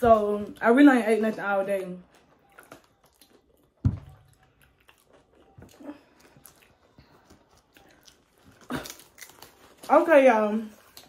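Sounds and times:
wet chewing: 2.0s - 10.0s.

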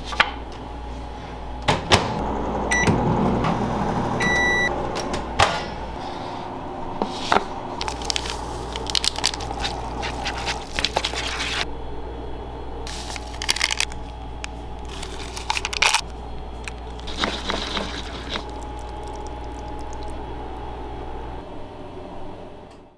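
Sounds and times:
steady low hum: 0.4s - 22.8s
paper bowl rustling and scraping: 7.2s - 11.7s, 12.9s - 14.1s, 14.8s - 20.0s.

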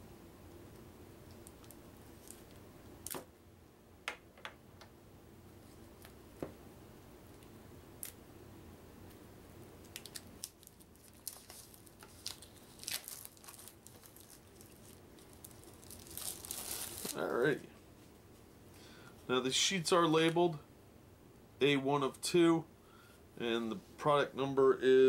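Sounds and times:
plastic wrapping crinkling: 9.8s - 17.4s.

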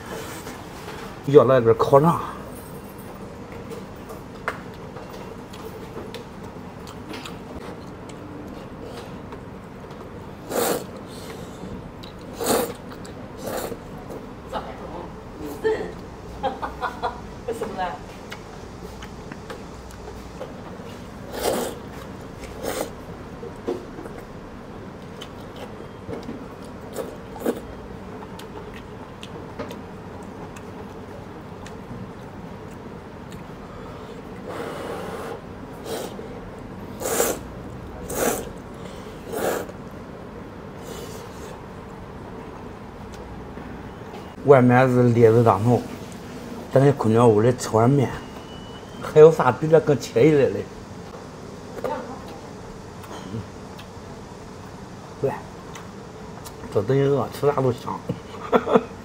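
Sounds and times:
low background hum: 0.0s - 59.0s
man chewing: 3.5s - 14.3s, 18.2s - 40.1s, 52.9s - 54.8s, 55.6s - 56.7s
loud noodle slurps: 10.4s - 11.6s, 12.3s - 13.9s, 21.3s - 21.9s, 22.5s - 23.0s, 34.4s - 36.2s, 36.9s - 38.6s, 39.2s - 39.8s.

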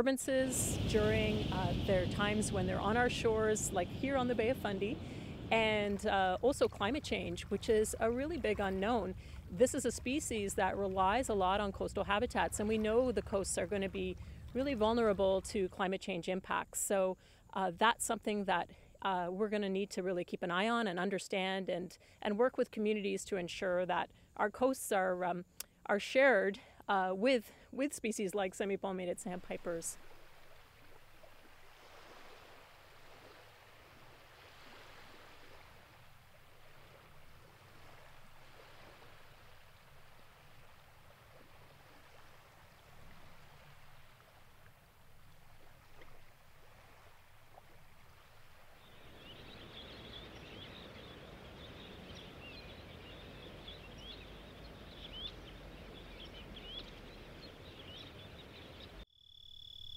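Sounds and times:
wind and water hiss: 0.0s - 19.0s, 26.7s - 59.0s
shorebirds peeping: 0.5s - 15.5s, 45.2s - 59.0s.

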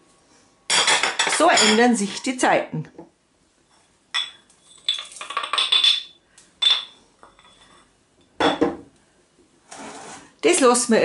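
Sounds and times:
ceramic mortar and pestle clinking: 4.1s - 8.8s.

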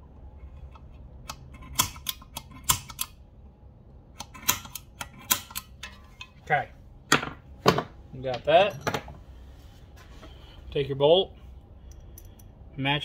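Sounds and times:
center punch tapping metal: 1.2s - 3.2s, 4.2s - 6.0s.

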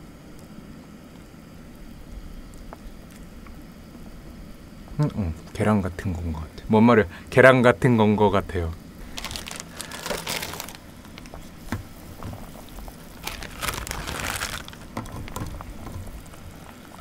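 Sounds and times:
broth boiling and bubbling: 0.0s - 17.0s
dried noodles rustling: 9.0s - 17.0s.

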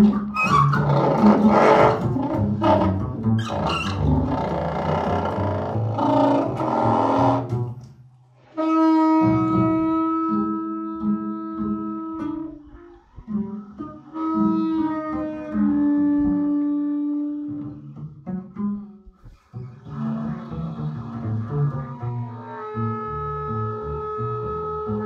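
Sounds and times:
plucked double bass notes: 0.0s - 8.0s, 8.6s - 25.0s
rough brass texture: 0.5s - 7.7s
long held trombone note: 8.6s - 17.8s.

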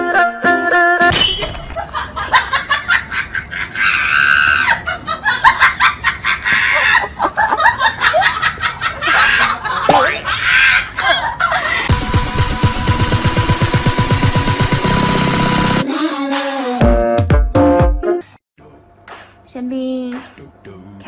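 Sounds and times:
people laughing: 1.8s - 11.9s.

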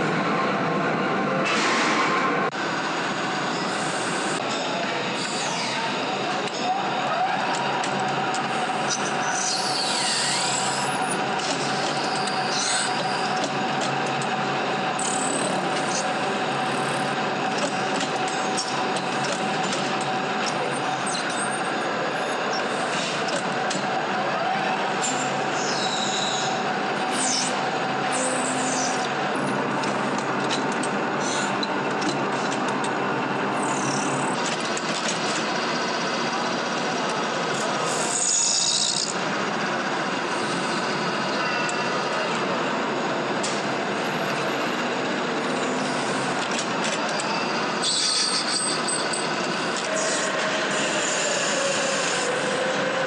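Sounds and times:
lathe machine hum: 2.4s - 53.0s
drill cutting squeal: 3.5s - 6.8s, 8.6s - 13.5s, 14.9s - 16.1s, 20.4s - 23.1s, 24.9s - 29.1s, 31.2s - 31.6s, 33.6s - 34.4s, 37.8s - 39.1s, 47.1s - 52.9s
brief high squeals: 47.4s - 49.2s.

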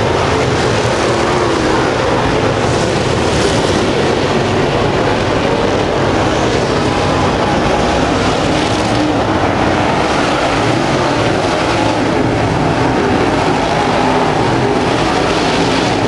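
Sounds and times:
race car engines racing: 0.0s - 16.0s.

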